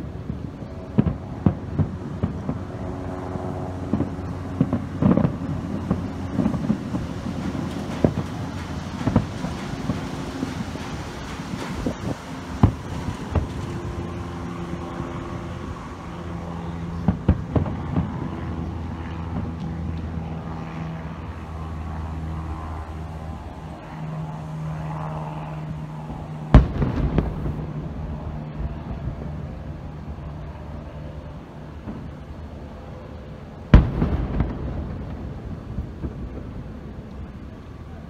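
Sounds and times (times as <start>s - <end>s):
steady low hum: 0.0s - 38.0s
fireworks bangs: 0.9s - 2.8s, 3.9s - 14.1s, 26.5s - 27.7s, 33.7s - 37.5s.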